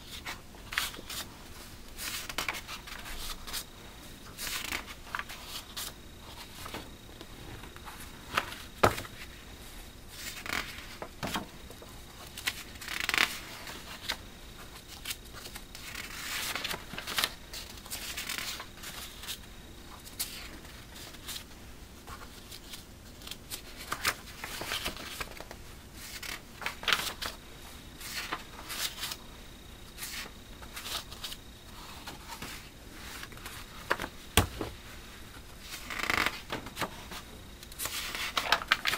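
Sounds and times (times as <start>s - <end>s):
magazine pages turning: 10.1s - 19.4s, 20.0s - 27.4s, 28.0s - 29.2s, 35.6s - 38.9s
page flaps: 10.2s - 14.2s, 35.6s - 37.2s, 37.8s - 38.9s.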